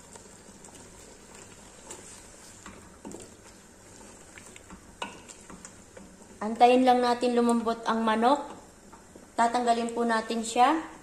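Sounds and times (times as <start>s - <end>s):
wooden spoon stirring in pot: 0.0s - 10.7s
faint sizzle: 0.0s - 11.0s
spoon knocking and scraping pot: 4.7s - 6.2s.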